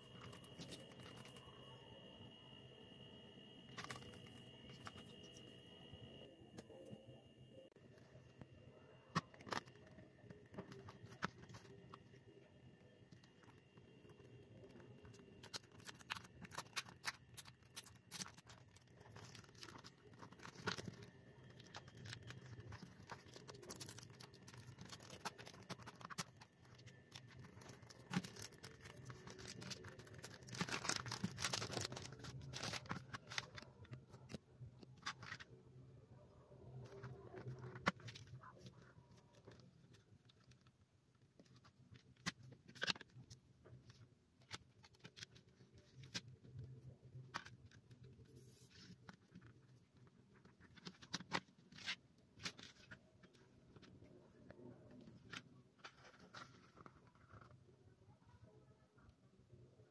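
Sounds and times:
cellophane crinkling and tearing: 0:00.0 - 0:01.5, 0:03.7 - 0:05.4, 0:09.1 - 0:12.4, 0:13.1 - 0:35.5, 0:41.4 - 0:54.0.

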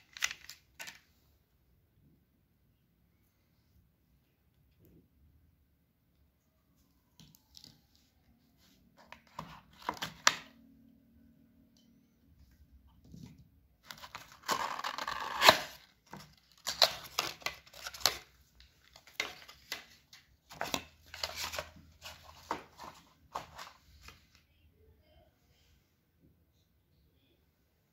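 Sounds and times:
packaging tearing and rustling: 0:00.0 - 0:01.0, 0:13.8 - 0:23.8.

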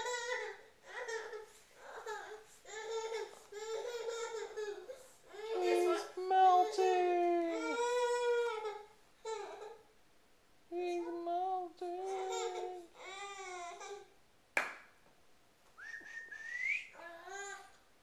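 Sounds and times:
baby babbling: 0:00.1 - 0:09.8, 0:10.9 - 0:14.1.

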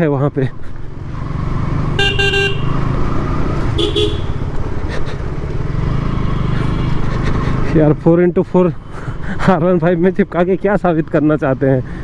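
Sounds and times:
motorcycle engine running: 0:00.6 - 0:07.8
vehicle horn honking: 0:02.0 - 0:02.8, 0:03.7 - 0:04.4.

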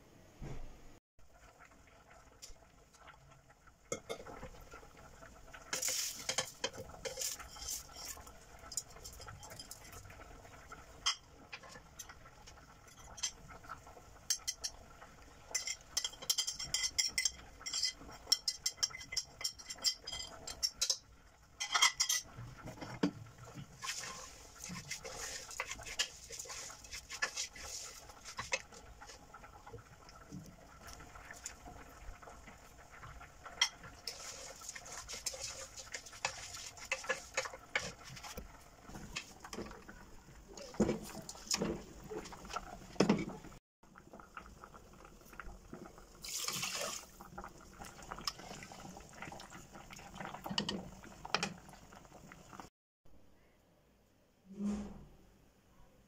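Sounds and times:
utensils clinking against metal pot: 0:05.7 - 0:10.0, 0:14.3 - 0:14.8, 0:15.5 - 0:23.1, 0:33.5 - 0:39.8
wooden spoon stirring lentils: 0:05.7 - 0:10.0, 0:23.6 - 0:29.3, 0:33.9 - 0:39.8.

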